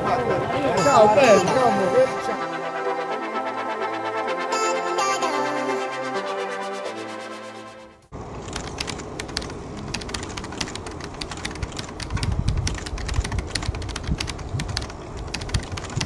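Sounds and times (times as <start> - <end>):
electronic music: 0.0 - 8.1
rumble of tyres and wind: 8.2 - 16.0
bicycle freewheels clicking: 8.4 - 16.0.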